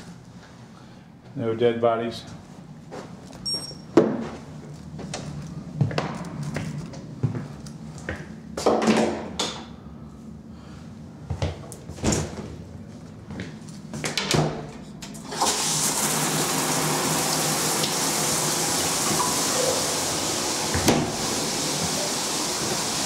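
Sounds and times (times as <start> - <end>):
shower water running: 15.2 - 23.0
knocks and clicks of shower: 20.6 - 22.0.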